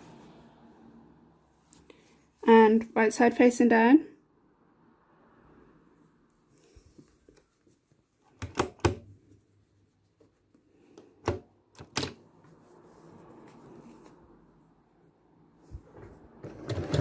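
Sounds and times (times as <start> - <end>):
fabric rustling: 6.4 - 8.4, 9.1 - 11.2, 12.2 - 16.3
sewing machine clicks and knocks: 16.4 - 17.0.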